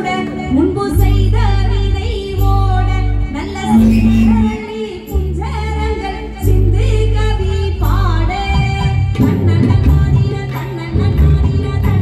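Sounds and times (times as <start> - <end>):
woman singing into microphone: 0.0 - 12.0
live band playing: 3.3 - 5.5.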